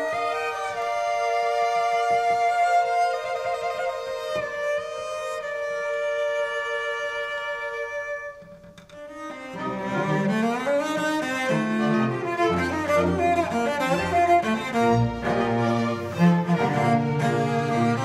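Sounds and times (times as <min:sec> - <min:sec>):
cello melody: 0:00.0 - 0:18.0
string orchestra chord: 0:11.4 - 0:18.0.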